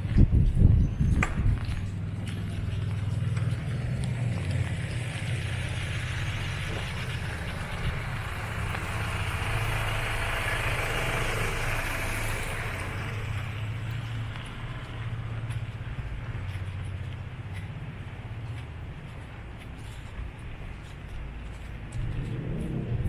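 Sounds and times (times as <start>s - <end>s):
low engine hum: 0.0s - 23.0s
tyres swishing on wet road: 1.2s - 23.0s.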